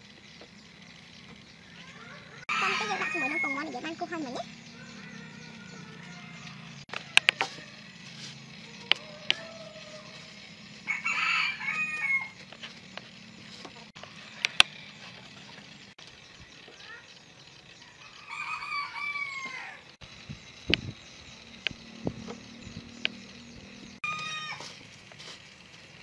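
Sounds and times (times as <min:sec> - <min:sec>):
rooster crowing: 0:01.8 - 0:03.8, 0:08.6 - 0:12.4, 0:17.8 - 0:19.9, 0:24.0 - 0:24.7
sharp clicks: 0:14.4 - 0:14.8, 0:20.6 - 0:23.3.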